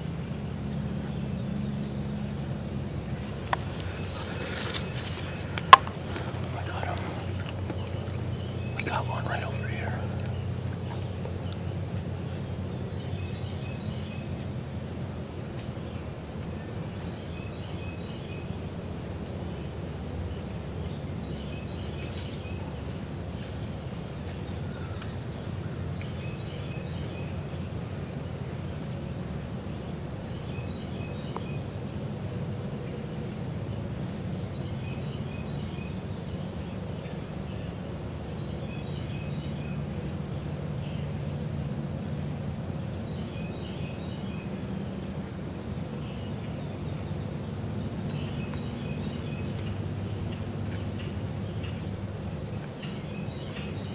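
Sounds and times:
high insect drone: 0.0s - 53.9s
low background rumble: 0.0s - 53.9s
small bird phrase: 3.6s - 10.5s.

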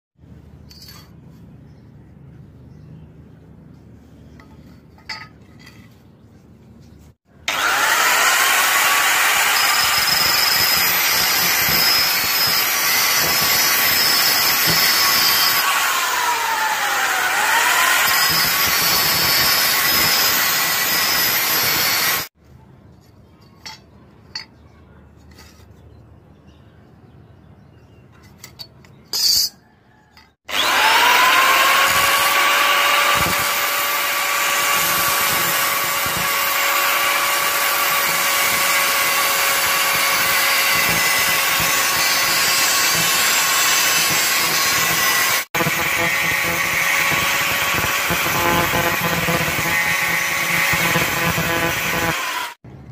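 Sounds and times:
angle grinder cutting steel: 7.4s - 22.4s, 30.5s - 52.6s.

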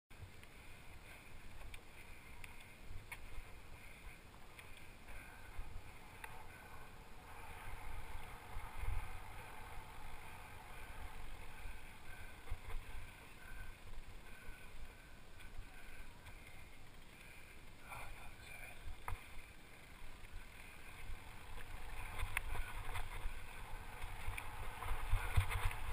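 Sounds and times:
bike tyre and trail noise: 0.1s - 25.9s
bike clicks and rattles: 0.3s - 17.8s, 18.8s - 25.9s
wind buffeting microphone: 21.1s - 25.9s.

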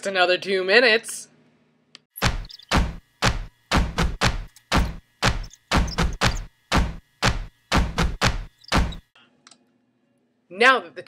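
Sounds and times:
sharp knocks: 2.2s - 9.1s.

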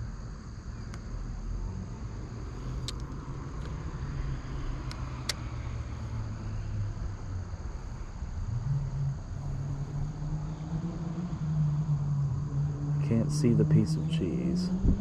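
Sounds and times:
road traffic rumble: 0.0s - 15.0s
sharp clicks: 2.8s - 3.8s, 4.8s - 5.5s.

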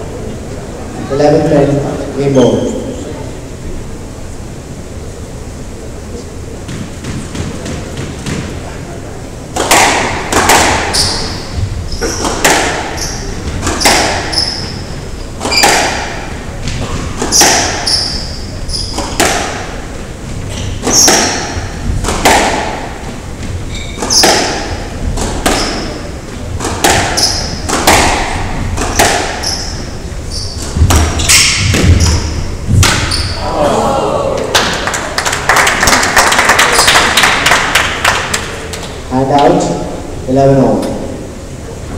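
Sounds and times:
squash ball cracking off walls: 9.5s - 11.4s, 12.0s - 14.7s, 15.4s - 18.2s, 18.8s - 19.7s, 20.8s - 23.0s, 24.0s - 29.6s, 30.6s - 33.4s
shoes squeaking on wooden floor: 10.9s - 15.8s, 16.6s - 19.2s, 20.3s - 21.7s, 23.0s - 27.8s, 28.5s - 33.4s.

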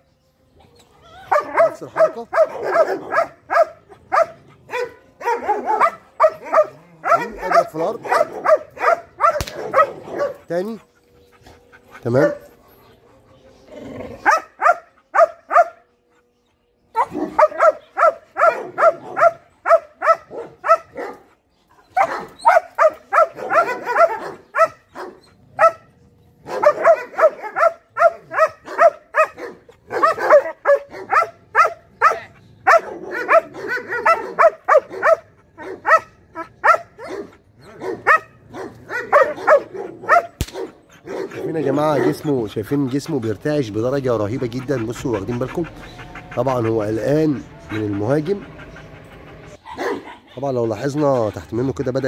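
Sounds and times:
dog barking: 1.3s - 10.4s, 14.2s - 15.8s, 17.0s - 21.3s, 21.9s - 42.4s, 49.6s - 50.4s
sharp click: 9.4s - 9.6s, 40.4s - 40.7s.

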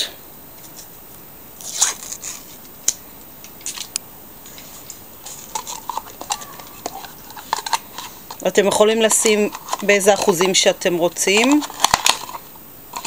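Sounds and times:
foil lid peeling: 1.6s - 2.6s, 4.5s - 13.0s
plastic cup clicks and crackles: 4.8s - 13.0s.

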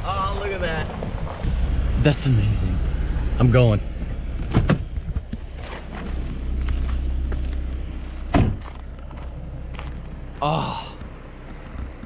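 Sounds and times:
low steady rumble: 0.0s - 12.0s
car door shutting thump: 4.4s - 4.9s, 8.3s - 8.7s
car door clicks: 4.4s - 5.3s.

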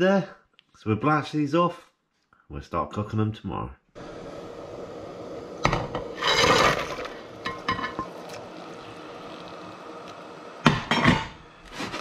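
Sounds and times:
loud splash into boiling water: 4.0s - 11.3s.

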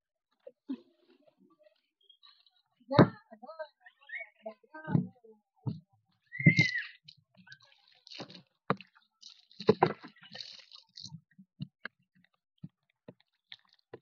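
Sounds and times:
water splashing into plastic tank: 7.5s - 11.1s.

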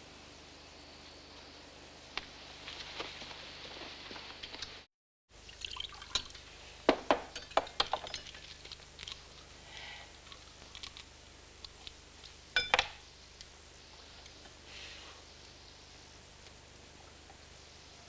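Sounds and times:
drink pouring: 5.4s - 6.4s
glasses clinking: 12.6s - 13.0s.

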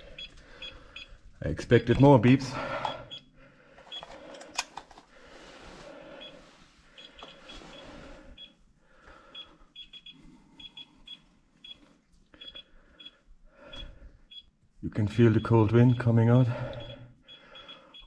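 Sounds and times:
geiger counter beeping: 0.0s - 3.3s, 8.3s - 8.6s, 9.3s - 11.8s, 12.4s - 14.5s, 15.2s - 18.0s.

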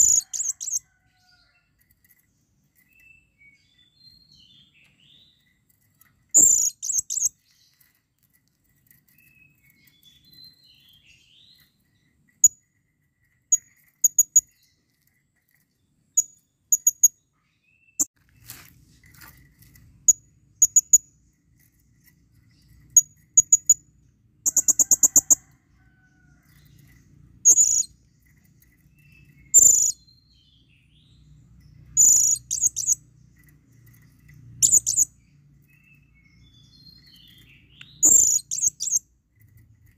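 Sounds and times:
parrot chirping: 0.0s - 0.8s, 6.3s - 7.3s, 23.0s - 23.8s, 24.4s - 25.4s, 27.4s - 27.9s, 29.4s - 30.0s, 31.9s - 33.0s, 34.5s - 35.1s, 37.0s - 39.0s
parrot chattering rattle: 0.0s - 1.0s, 5.9s - 9.5s, 24.4s - 25.5s, 31.9s - 35.1s.

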